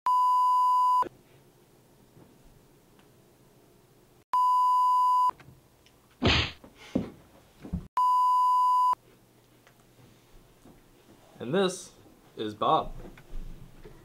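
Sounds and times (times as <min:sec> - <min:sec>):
censor bleep: 0:00.1 - 0:01.1, 0:04.4 - 0:05.3, 0:08.0 - 0:09.0.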